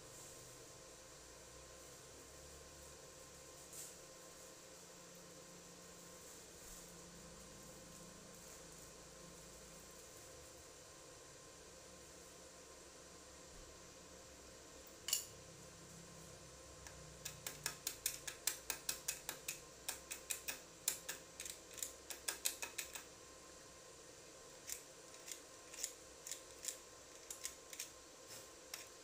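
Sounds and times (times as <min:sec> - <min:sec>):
sharp crisp clicks: 0:16.8 - 0:23.1.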